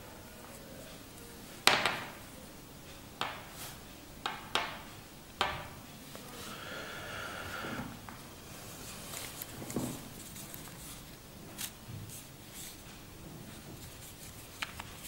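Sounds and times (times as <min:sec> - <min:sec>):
hand sliding across table: 0:06.4 - 0:08.1.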